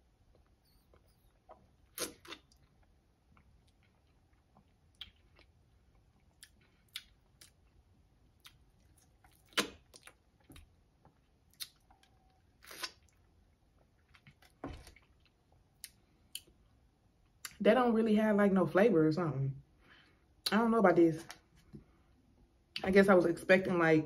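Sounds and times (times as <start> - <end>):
person chewing: 0.3 - 16.7
small mouth clicks: 0.7 - 2.6, 9.3 - 10.2.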